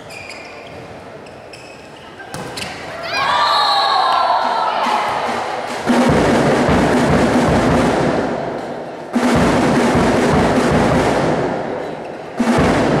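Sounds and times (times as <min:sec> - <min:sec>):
loud drumming with music: 0:04.3 - 0:13.0.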